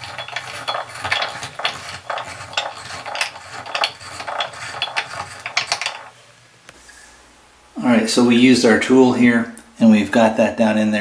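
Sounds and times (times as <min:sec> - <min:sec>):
metallic clinks and scrapes: 0:00.0 - 0:06.2.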